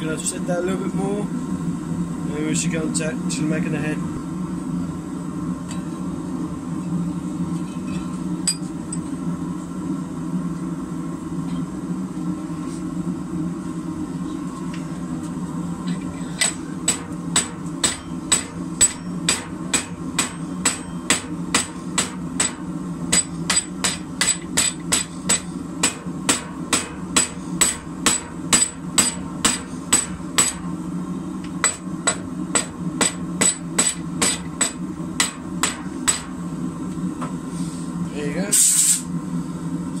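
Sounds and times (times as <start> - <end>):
steady low hum: 0.0 - 40.0
hammer striking hot metal: 16.0 - 30.7, 31.4 - 36.4.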